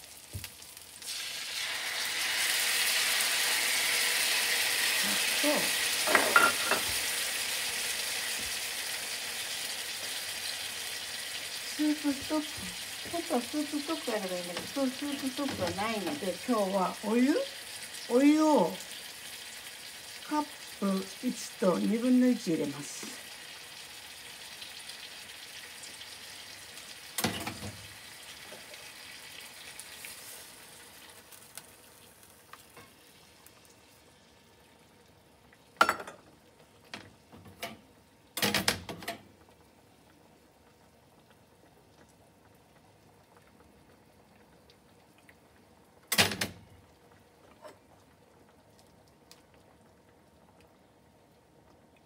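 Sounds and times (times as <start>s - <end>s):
sauce sizzling in a frying pan: 0.0s - 38.4s
utensils clacking against pan: 6.1s - 6.9s.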